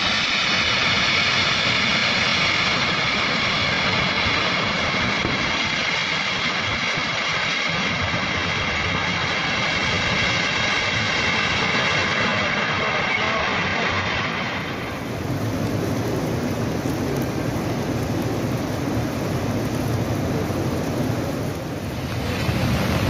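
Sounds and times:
river rushing: 14.6 - 23.0.

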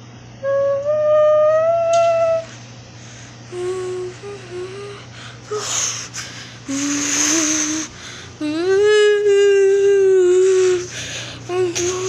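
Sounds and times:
person humming a tune: 0.4 - 2.6, 3.5 - 12.0
breathy hissing noises: 2.5 - 8.4.

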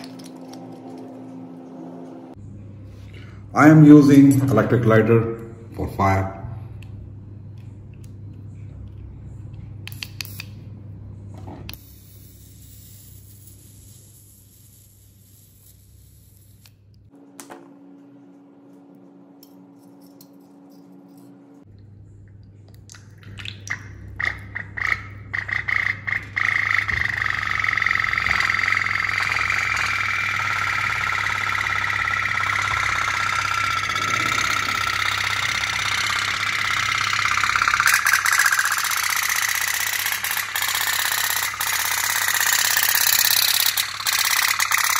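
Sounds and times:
toy steam boat putt-putt rattle: 24.8 - 44.9.

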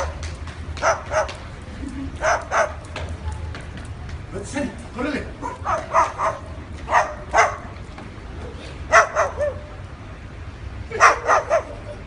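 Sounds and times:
cockatoo making dog-like barks: 0.8 - 1.4, 2.2 - 2.8, 5.4 - 7.7, 8.9 - 9.7, 10.9 - 12.0.

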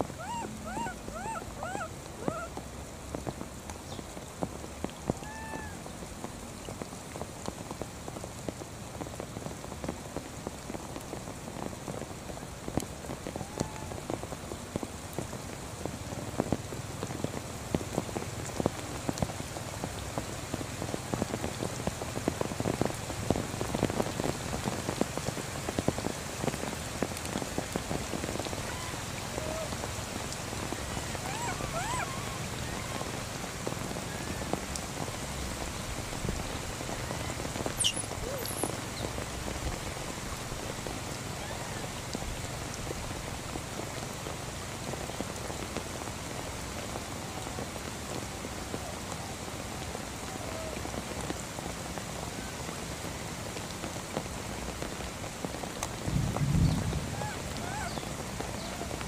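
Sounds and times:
rain pattering on grass: 0.0 - 59.0
short high squeaks: 37.8 - 38.7.

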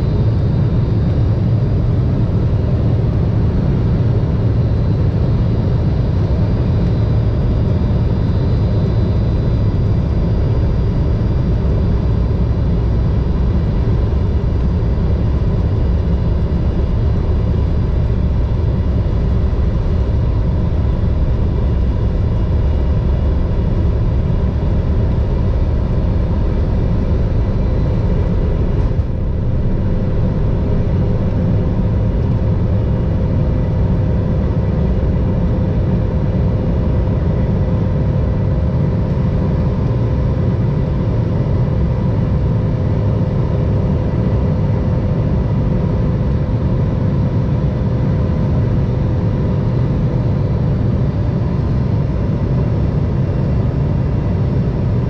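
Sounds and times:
jet engines idling: 0.0 - 55.0.

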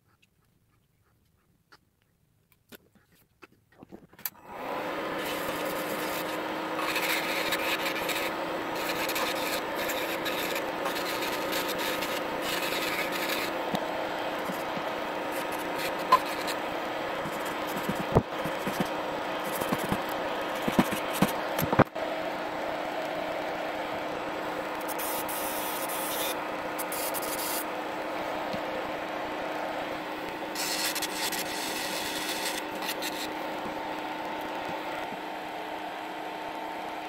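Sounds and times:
rotary tool whining: 4.2 - 21.9, 22.8 - 35.2
rasping grinding strokes: 5.0 - 21.4, 24.8 - 27.7, 30.5 - 33.4.

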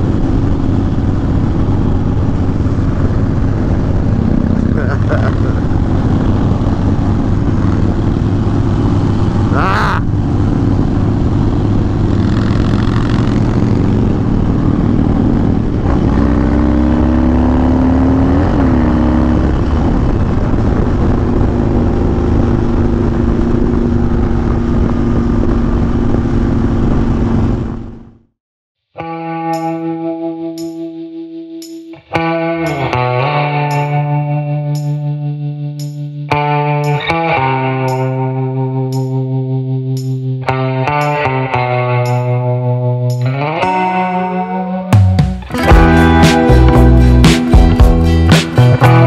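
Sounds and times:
motorcycle engine cruising: 0.0 - 28.3, 31.6 - 49.0
wind rush: 18.2 - 28.1.

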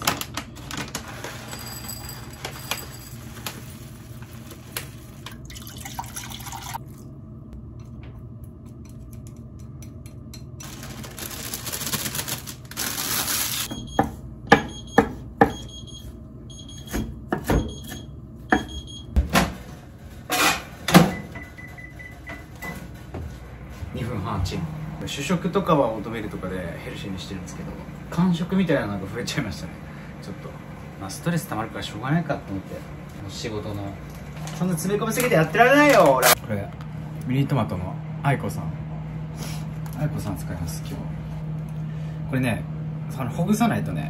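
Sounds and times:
liquid pouring: 5.2 - 7.1.

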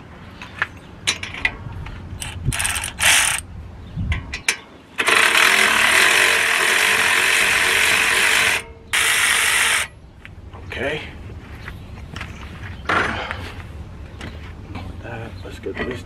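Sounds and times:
cordless ratchet wrench spinning: 2.2 - 3.4, 5.0 - 9.9.

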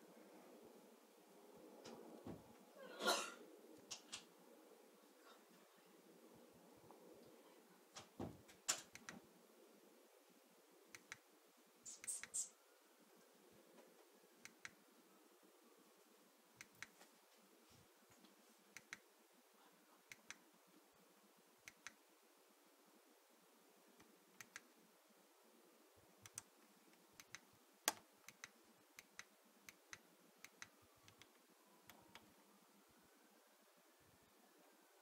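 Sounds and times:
buttons clicking: 18.7 - 19.1, 21.7 - 22.0.

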